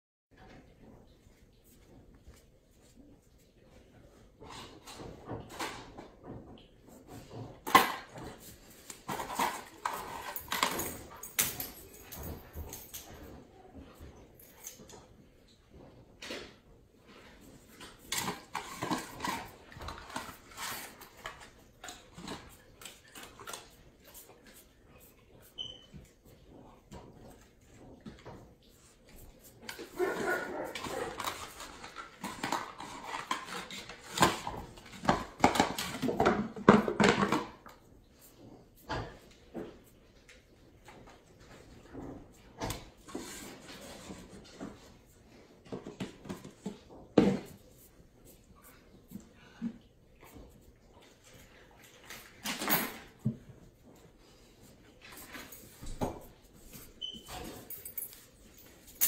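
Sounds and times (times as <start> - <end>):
plastic basket clattering on tile: 7.6 - 11.6, 29.7 - 37.7.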